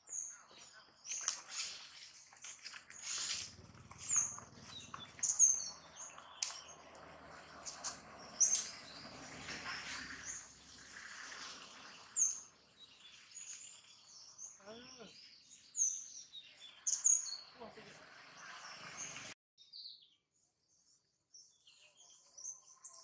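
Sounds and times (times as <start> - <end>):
leaves and branches rustling: 1.0 - 14.0
monkey chirping calls: 4.0 - 5.8.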